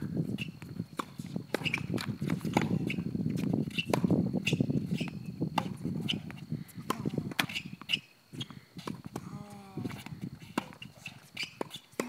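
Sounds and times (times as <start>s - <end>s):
tennis balls hitting rackets: 0.4s - 12.0s.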